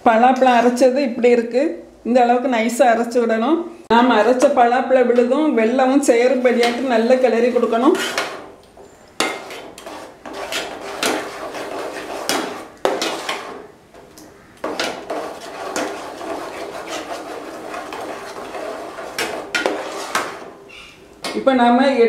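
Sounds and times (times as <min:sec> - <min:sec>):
ladle scraping metal pot: 0:06.1 - 0:21.1.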